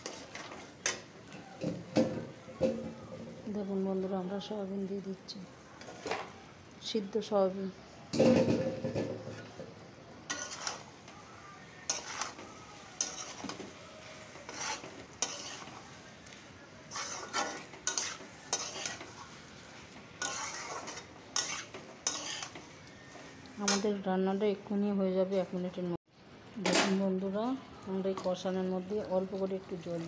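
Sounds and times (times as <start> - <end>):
metal spatula scraping wok: 0.0 - 1.1, 10.3 - 11.1, 11.8 - 16.0, 16.9 - 24.6
low sizzle of frying: 0.0 - 30.0.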